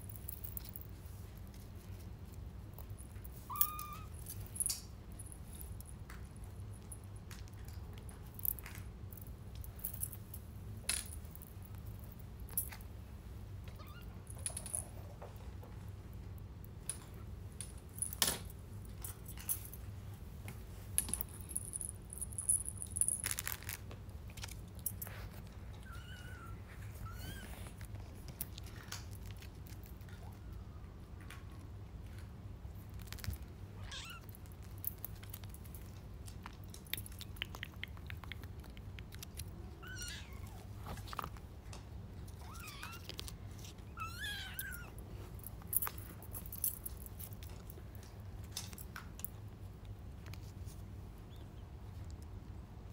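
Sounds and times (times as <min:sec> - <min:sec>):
kitten meows: 0:03.4 - 0:04.1, 0:13.7 - 0:14.1, 0:25.8 - 0:27.6, 0:33.8 - 0:34.3, 0:39.8 - 0:40.7, 0:42.4 - 0:43.1, 0:43.9 - 0:45.0.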